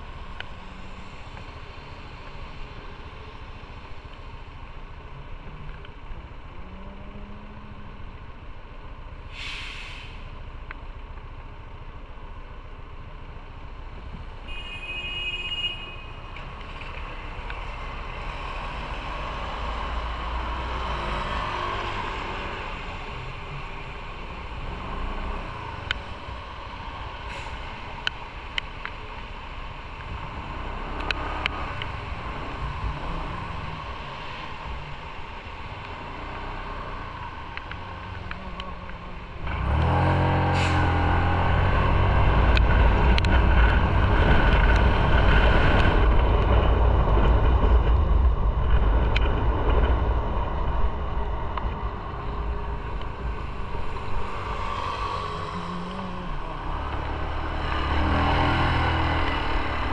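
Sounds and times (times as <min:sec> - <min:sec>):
vehicles passing: 0:00.0 - 0:14.6, 0:15.8 - 0:59.9
traffic rumble and tyre hiss: 0:00.0 - 0:59.9
short sharp hiss: 0:09.3 - 0:10.3.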